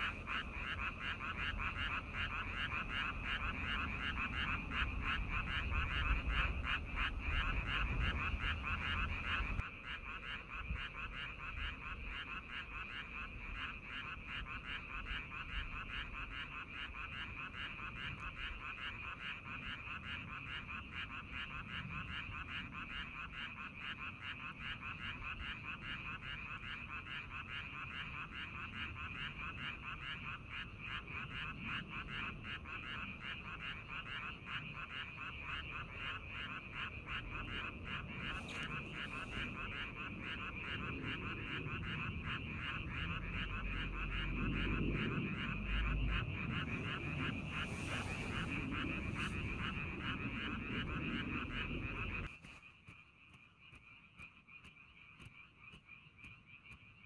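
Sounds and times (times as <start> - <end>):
frogs calling: 0.0 - 57.0
low rumble: 42.5 - 52.3.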